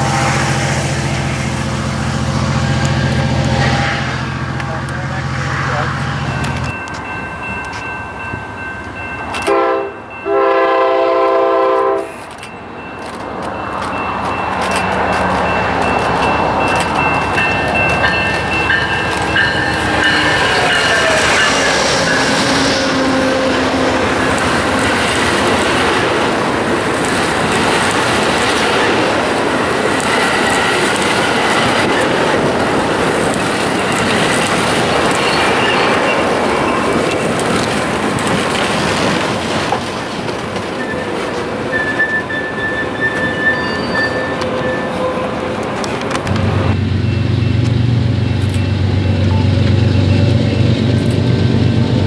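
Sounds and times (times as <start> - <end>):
locomotive pitched tone: 0.0 - 26.8, 28.1 - 38.2, 40.2 - 52.0
train wheels rushing on rail: 0.0 - 52.0
high wheel squeals: 12.6 - 25.1, 33.7 - 37.4, 40.6 - 45.9.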